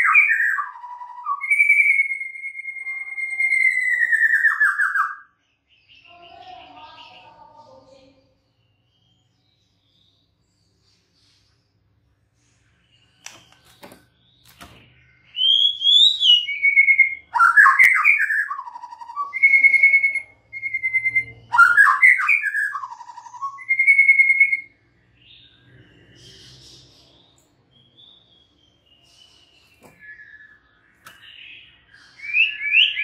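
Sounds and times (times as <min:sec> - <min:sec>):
bird singing whistled warbles: 0:00.0 - 0:06.4, 0:13.0 - 0:33.0.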